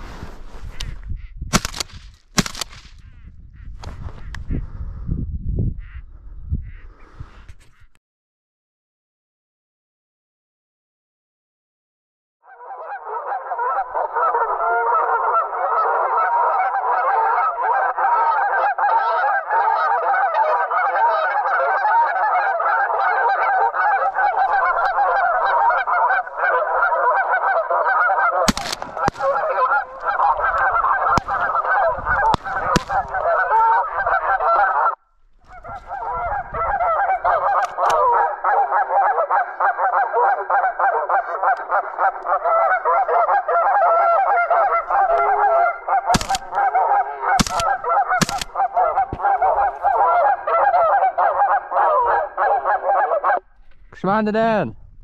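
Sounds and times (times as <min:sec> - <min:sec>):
geese honking: 0:12.5 - 0:53.5.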